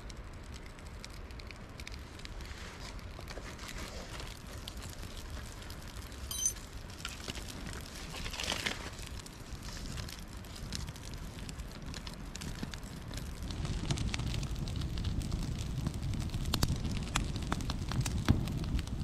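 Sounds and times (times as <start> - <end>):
flames rushing: 0.0 - 19.0
kindling crackling and popping: 0.0 - 19.0
sharp high-pitched blip: 6.3 - 6.6.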